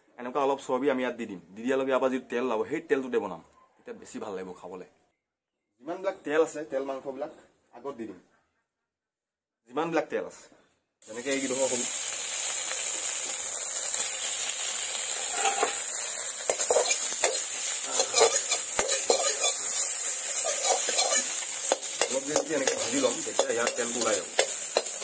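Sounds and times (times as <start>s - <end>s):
pork sizzling in a metal wok: 11.0s - 25.0s
metal spoon scraping and clinking pan: 15.2s - 25.0s.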